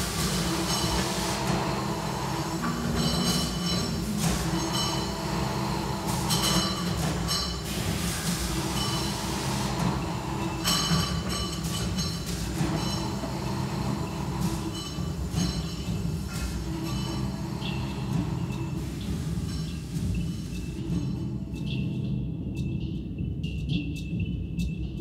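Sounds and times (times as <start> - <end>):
heavy machinery humming: 0.0 - 22.4
high metallic squealing: 0.6 - 7.6.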